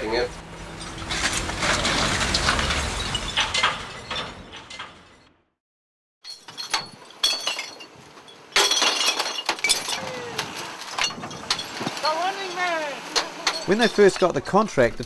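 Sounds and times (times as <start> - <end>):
glass bottles clinking: 6.2 - 10.2, 10.8 - 14.4
bottles clattering into bin: 6.2 - 12.5.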